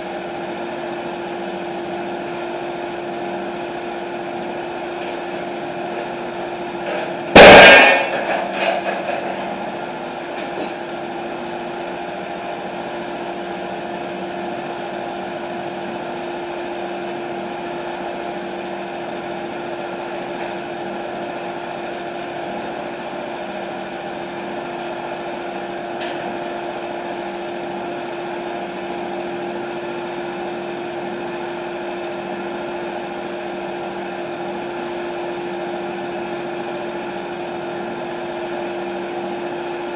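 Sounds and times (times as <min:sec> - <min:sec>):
sawmill engine idling: 0:00.0 - 0:39.9
loud metal clang: 0:06.9 - 0:09.6.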